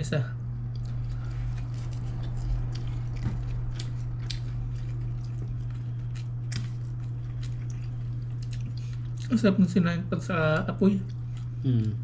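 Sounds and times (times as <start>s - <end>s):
steady low hum: 0.0s - 12.0s
chewing smacks: 0.6s - 9.3s.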